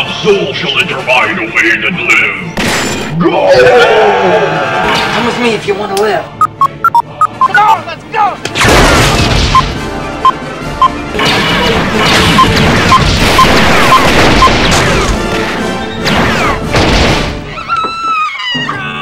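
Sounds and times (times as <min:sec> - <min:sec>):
action music: 0:06.3 - 0:17.5
crashes and bangs: 0:08.5 - 0:10.0, 0:11.1 - 0:17.5
gunfire: 0:08.6 - 0:09.8, 0:11.1 - 0:15.3.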